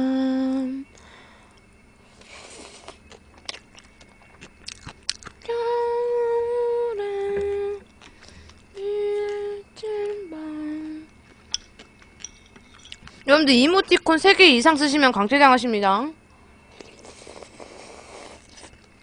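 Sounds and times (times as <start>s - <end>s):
woman humming: 0.0s - 1.0s, 5.4s - 7.9s, 8.7s - 11.2s.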